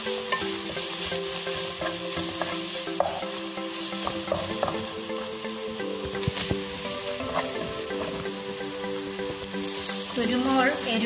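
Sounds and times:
onions sizzling in frying pan: 0.0s - 11.0s
spatula stirring and scraping: 0.1s - 3.2s, 6.1s - 8.4s
spatula knocking against pan: 1.8s - 3.3s, 4.0s - 4.8s.

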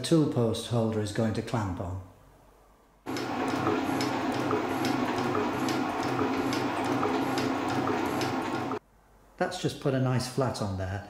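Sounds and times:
metal shaper cutting: 3.1s - 8.8s.

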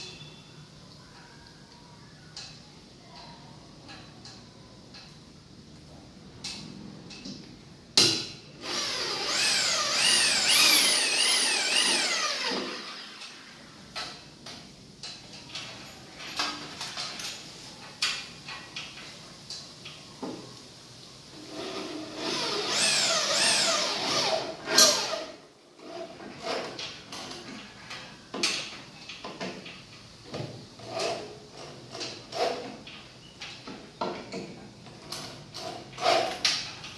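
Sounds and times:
electric drill whining: 8.6s - 13.4s, 22.2s - 25.3s.

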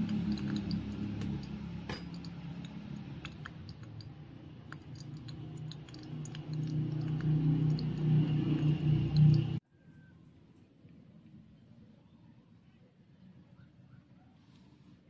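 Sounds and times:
hot oil crackling in a frying pan: 0.0s - 9.6s
low steady hum: 0.0s - 13.6s.

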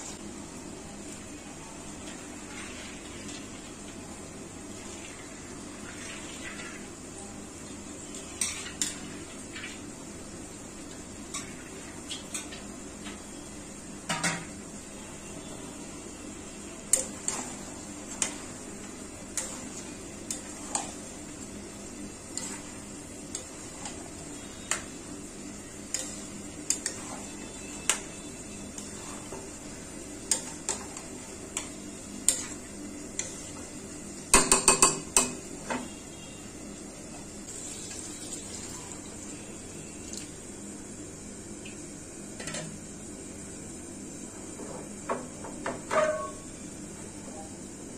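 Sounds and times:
metal spatula scraping pan: 25.9s - 29.5s.

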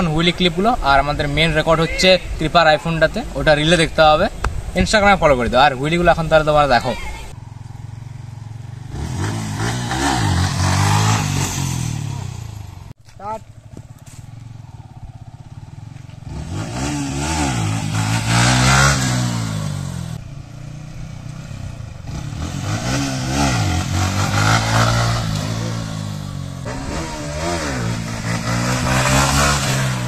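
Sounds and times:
motorcycle engine revving: 6.1s - 30.0s.

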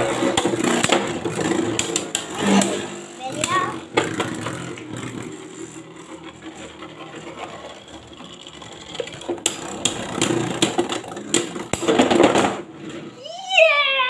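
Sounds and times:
spinning tops whirring: 0.0s - 13.0s.

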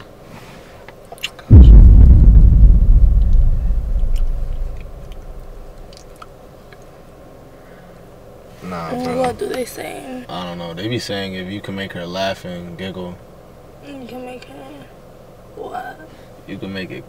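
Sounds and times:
loud deep boom: 1.5s - 5.8s.

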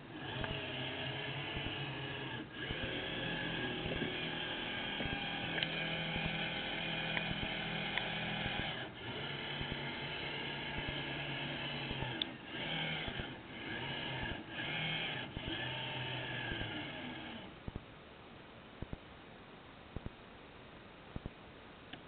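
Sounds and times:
electric motor hum and whine: 0.0s - 17.8s.

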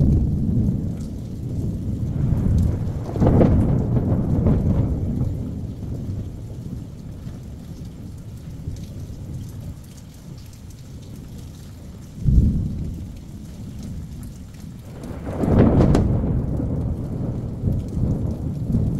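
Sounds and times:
thunder clap: 0.0s - 7.3s, 12.2s - 18.9s
steady rain: 0.0s - 18.9s
thunder rumbling: 0.0s - 18.9s.

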